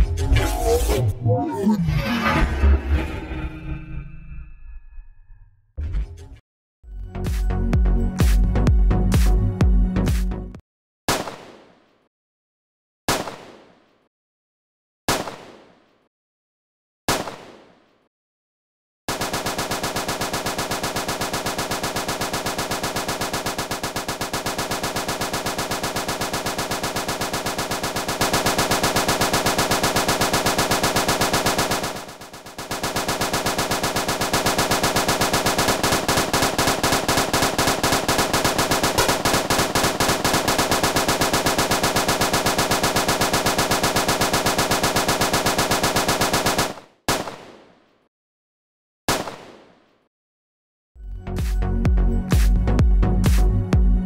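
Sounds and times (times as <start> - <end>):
rapid machine-gun-like stream: 19.1 - 47.5.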